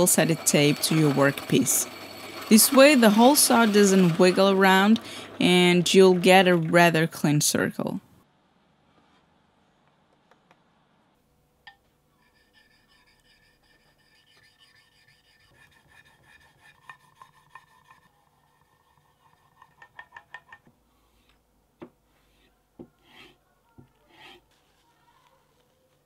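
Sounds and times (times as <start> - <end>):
steel rubbing on wet sharpening stone: 12.2 - 19.9, 22.4 - 23.4, 24.1 - 24.4.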